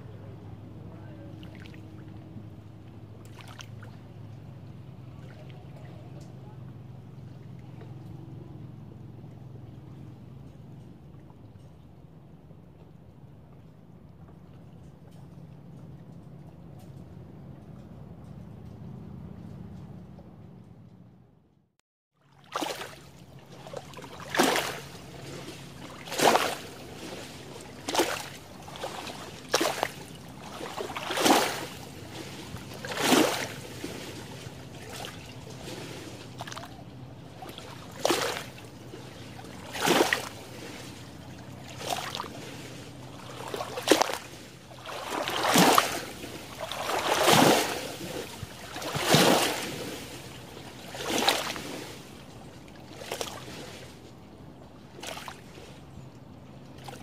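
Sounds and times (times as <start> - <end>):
small waves lapping on shore: 0.0 - 10.2, 22.2 - 57.0.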